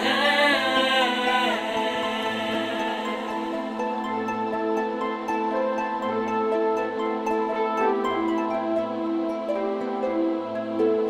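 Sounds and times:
soft music with sustained chords: 0.0 - 11.0.

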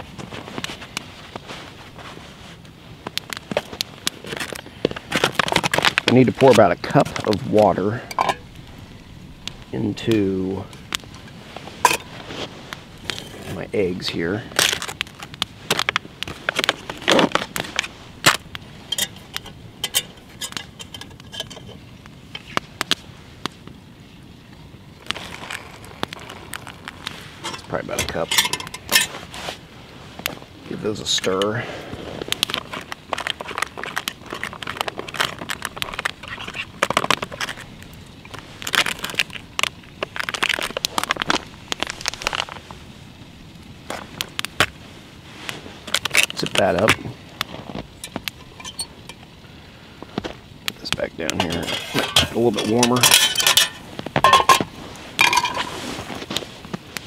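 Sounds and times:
metal cook pot clinking: 8.1 - 8.4, 11.8 - 12.1, 18.9 - 21.8, 27.4 - 29.1, 48.0 - 49.2, 51.4 - 55.7
meal pouch crinkling: 32.4 - 42.7.

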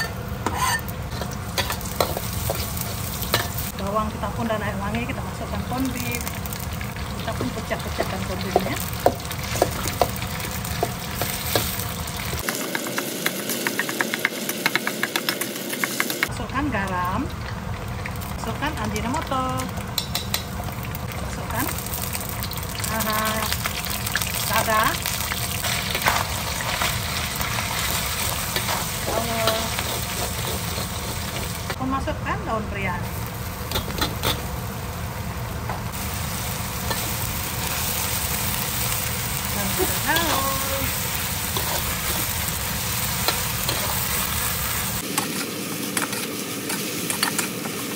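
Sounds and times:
metal spatula scraping a wok: 0.0 - 3.7, 25.6 - 31.8
oil sizzling: 0.0 - 47.9.

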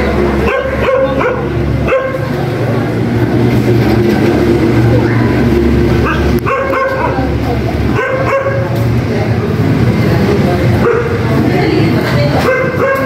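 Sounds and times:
steady low hum: 0.0 - 12.9
dog barking and yelping: 0.4 - 2.3, 6.0 - 7.3, 7.9 - 8.7, 10.8 - 11.2, 12.4 - 13.0.

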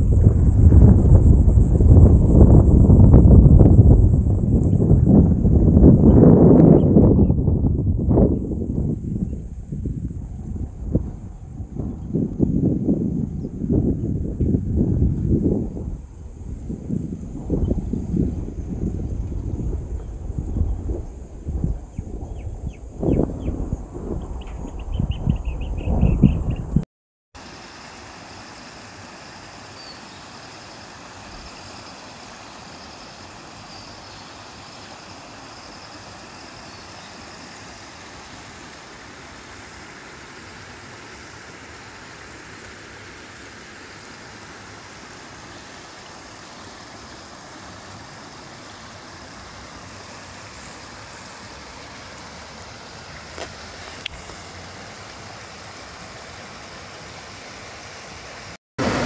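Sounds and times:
floodwater rushing: 27.4 - 59.0.

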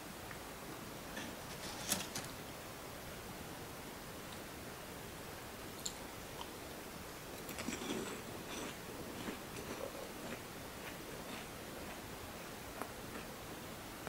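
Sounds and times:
faint steady hiss: 0.0 - 14.0
crunchy snack being chewed: 7.4 - 12.0.

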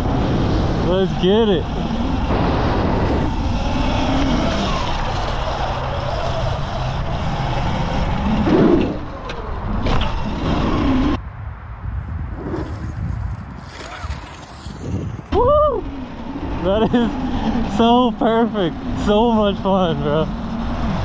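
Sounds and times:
loud rushing noise: 0.0 - 5.8.

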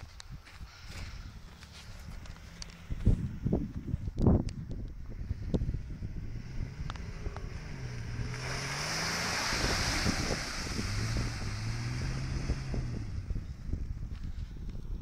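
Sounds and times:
wind on microphone: 0.0 - 15.0
suv engine revving: 5.2 - 13.6.

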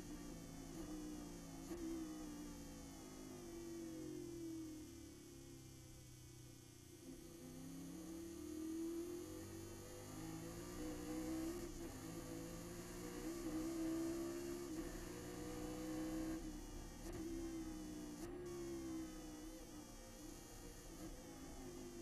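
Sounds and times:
race car engine accelerating: 7.6 - 19.2.

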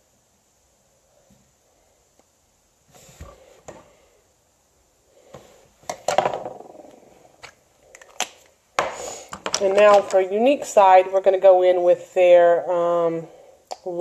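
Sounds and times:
cosmetics clicking and clattering: 7.4 - 10.2.

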